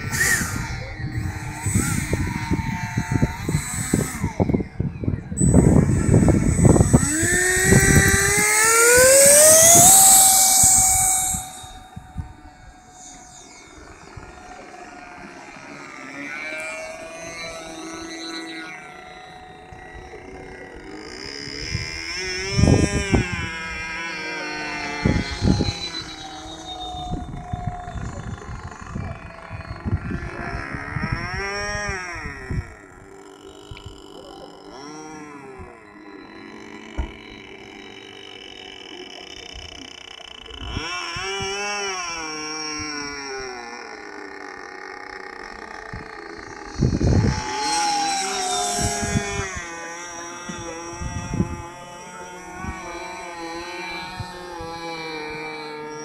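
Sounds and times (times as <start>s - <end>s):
wind buffeting microphone: 0.0s - 15.6s, 19.4s - 35.8s, 45.4s - 56.0s
electric ducted fan whine: 0.0s - 56.0s.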